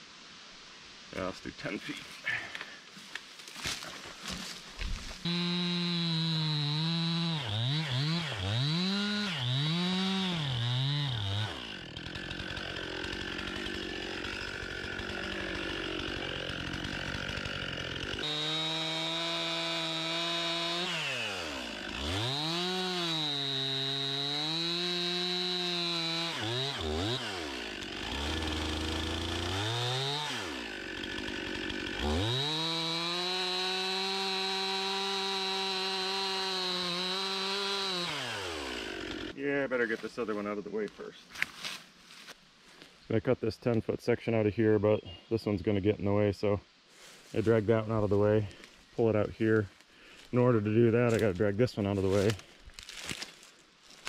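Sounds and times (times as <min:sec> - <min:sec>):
chainsaw cutting log: 0:03.5 - 0:39.4, 0:51.0 - 0:54.0.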